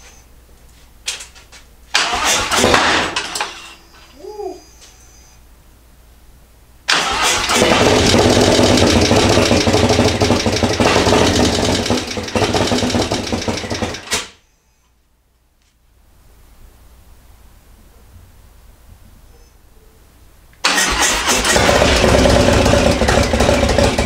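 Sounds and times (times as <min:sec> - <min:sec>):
motorcycle engine running loud: 0:07.5 - 0:14.0, 0:21.0 - 0:24.0.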